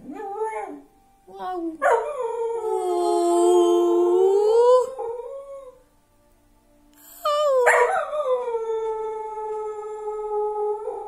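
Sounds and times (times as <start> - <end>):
person howling: 2.6 - 5.0, 7.0 - 7.9.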